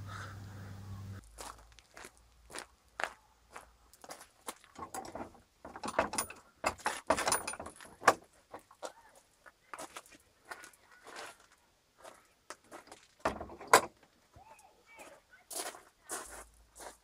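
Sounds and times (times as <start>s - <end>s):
footsteps on gravel: 1.2s - 4.8s, 8.6s - 13.2s, 14.4s - 17.0s
wooden gate clattering: 4.8s - 8.7s, 13.2s - 14.1s.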